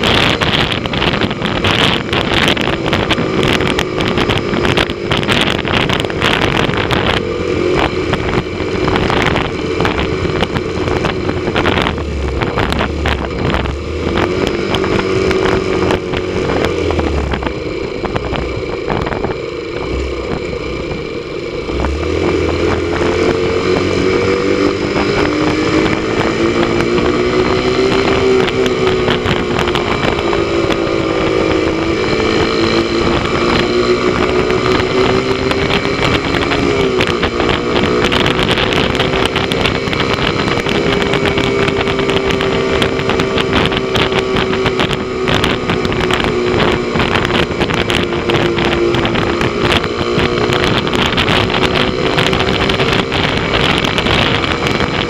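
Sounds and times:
motorcycle engine running: 0.0s - 55.0s
wind buffeting microphone: 0.0s - 55.0s.

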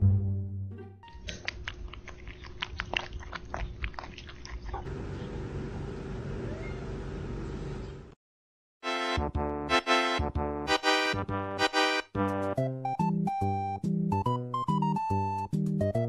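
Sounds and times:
cat eating from a bowl: 1.1s - 4.9s.

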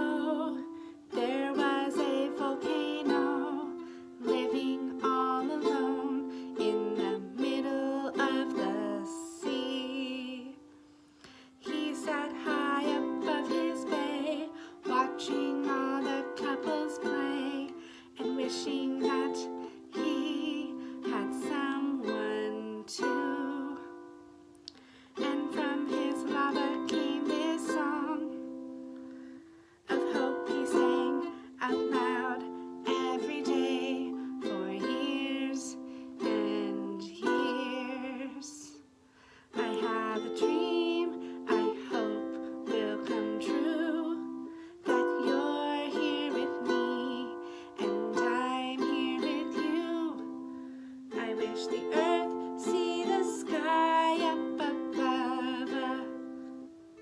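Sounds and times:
woman singing gently: 0.0s - 10.7s, 11.6s - 24.2s, 25.1s - 28.7s, 29.8s - 38.9s, 39.5s - 56.7s
ukulele strumming chords: 0.0s - 57.0s.

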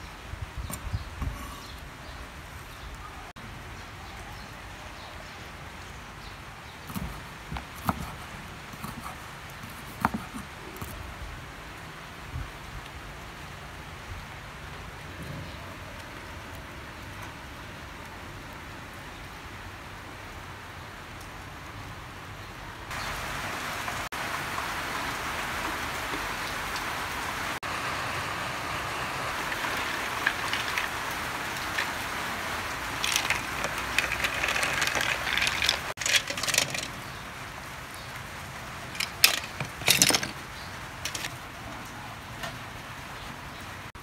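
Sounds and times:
water boiling in a pot: 23.0s - 37.0s
ladle clinking against shells and pot: 33.0s - 37.0s, 39.0s - 40.4s.

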